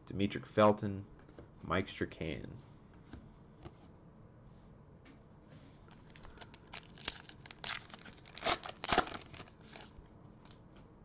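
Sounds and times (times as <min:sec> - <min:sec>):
foil wrapper crinkling and tearing: 0:05.9 - 0:10.0.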